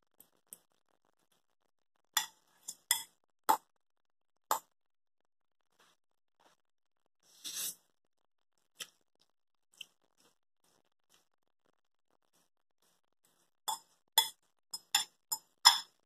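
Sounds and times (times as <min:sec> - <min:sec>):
metal fork clinking on glass bowl: 0:02.2 - 0:03.1, 0:13.7 - 0:16.0.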